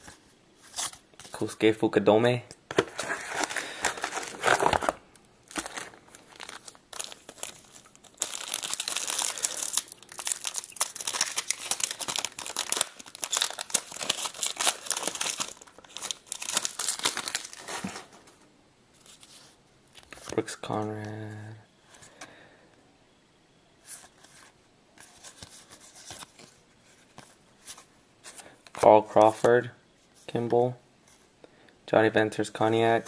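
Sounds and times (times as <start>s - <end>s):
plastic wrapper crinkling and tearing: 3.0s - 18.3s.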